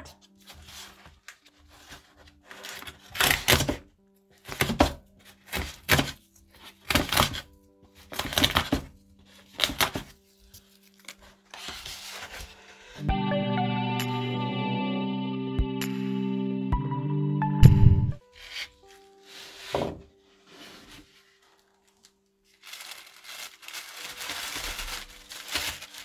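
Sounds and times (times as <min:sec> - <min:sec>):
music: 0:00.0 - 0:26.0
cardboard box scraping and rustling: 0:00.4 - 0:03.1, 0:11.5 - 0:13.0, 0:18.4 - 0:21.8.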